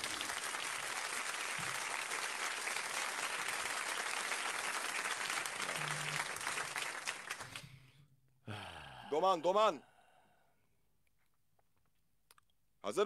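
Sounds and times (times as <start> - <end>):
applause: 0.0 - 8.0.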